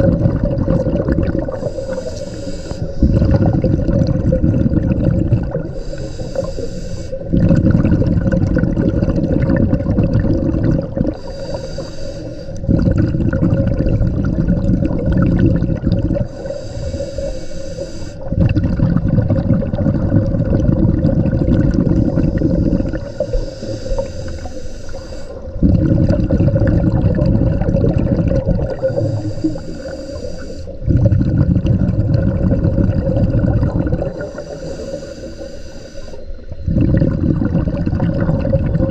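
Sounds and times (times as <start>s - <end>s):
bubbling exhale underwater: 0.0s - 11.9s, 12.5s - 17.3s, 18.2s - 38.9s
regulator hissing inhale: 1.4s - 3.3s, 5.6s - 7.4s, 11.1s - 12.7s, 16.2s - 18.4s, 21.8s - 25.6s, 28.7s - 30.9s, 34.0s - 36.7s.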